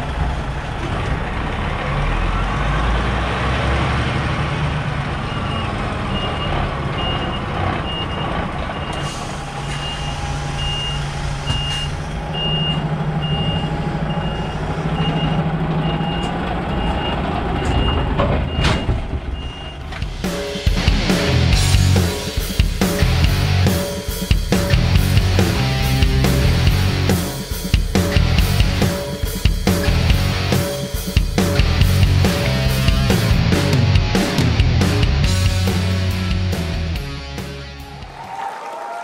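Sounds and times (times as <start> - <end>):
truck diesel engine running: 0.0 - 38.0
reversing alarm beeping: 5.2 - 19.8.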